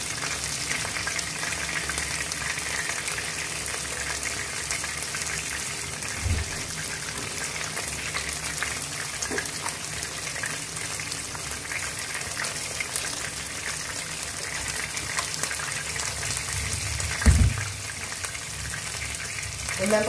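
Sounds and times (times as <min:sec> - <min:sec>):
chicken frying in hot oil: 0:00.0 - 0:20.0
short low thump: 0:06.2 - 0:06.6, 0:17.2 - 0:17.8.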